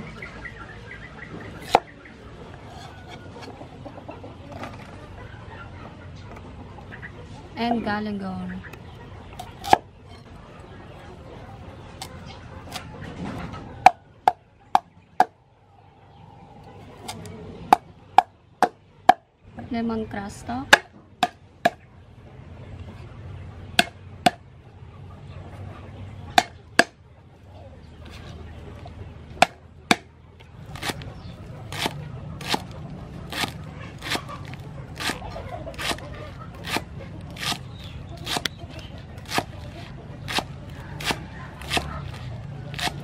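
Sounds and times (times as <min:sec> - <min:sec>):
cleaver chopping vegetable stalks: 0:01.5 - 0:01.9, 0:09.4 - 0:09.9, 0:20.7 - 0:21.8, 0:23.8 - 0:24.4, 0:26.3 - 0:27.0, 0:29.3 - 0:43.0.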